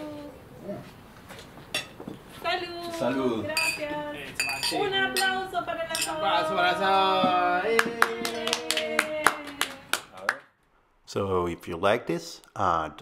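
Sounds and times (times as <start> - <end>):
glass and cutlery clinking: 1.7 - 2.0, 3.5 - 6.5.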